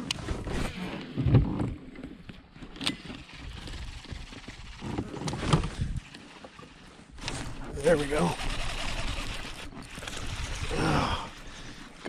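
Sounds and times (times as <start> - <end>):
wind buffeting microphone: 7.4 - 11.6.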